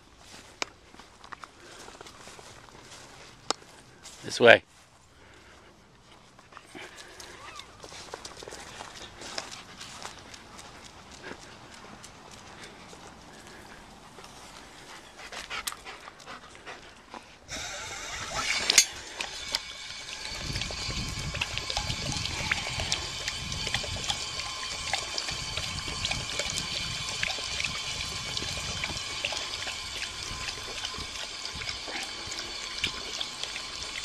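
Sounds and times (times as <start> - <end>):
dog lapping water: 17.5 - 34.0
fountain water stream hissing: 17.5 - 34.0.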